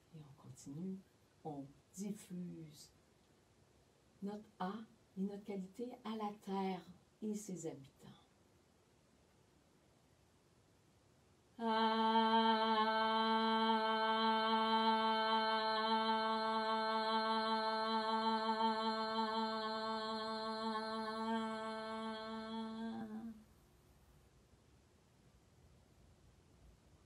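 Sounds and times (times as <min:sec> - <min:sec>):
woman singing sustained vowel: 0:11.6 - 0:23.4.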